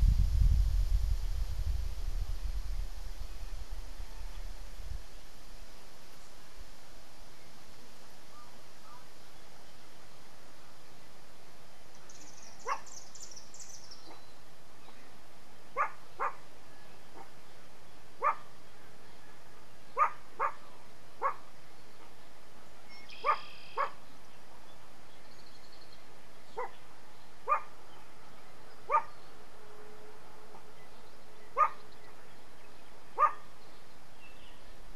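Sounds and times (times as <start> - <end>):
dog barking: 12.6 - 12.9, 15.8 - 16.4, 18.2 - 18.5, 20.0 - 20.6, 21.2 - 21.4, 23.2 - 24.0, 26.6 - 26.8, 27.5 - 27.7, 28.9 - 29.1, 31.6 - 31.8, 33.2 - 33.4
bird chirping trill: 22.9 - 24.0.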